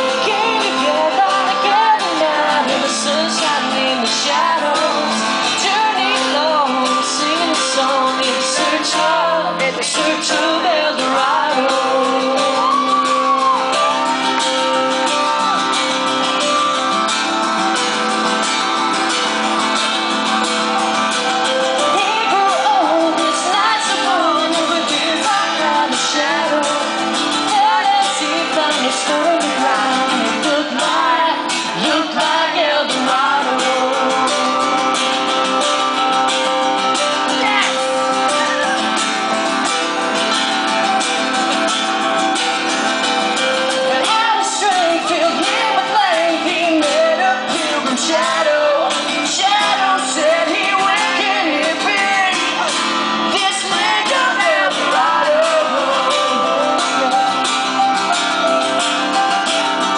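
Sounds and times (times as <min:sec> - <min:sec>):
man singing: 0:00.0 - 0:14.0, 0:21.4 - 0:36.2, 0:43.3 - 0:58.0
acoustic guitars strumming: 0:00.0 - 0:59.9.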